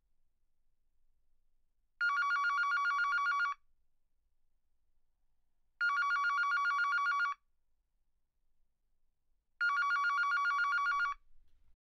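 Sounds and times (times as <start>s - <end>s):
digital telephone ringing: 2.0s - 3.6s, 5.8s - 7.4s, 9.6s - 11.2s.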